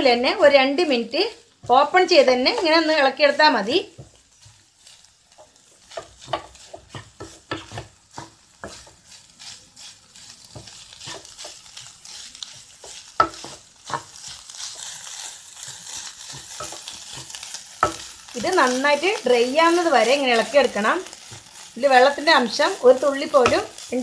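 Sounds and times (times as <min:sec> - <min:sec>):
food sizzling in a pan: 0:00.0 - 0:24.0
wooden spatula scraping a pan: 0:00.0 - 0:24.0
spatula knocking against pan: 0:13.2 - 0:14.1.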